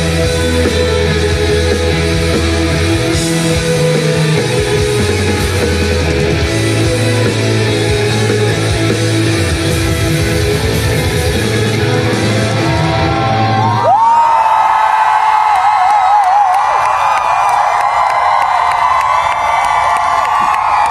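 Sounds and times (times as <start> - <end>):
rock band playing: 0.0 - 14.1
crowd whooping: 10.6 - 20.9.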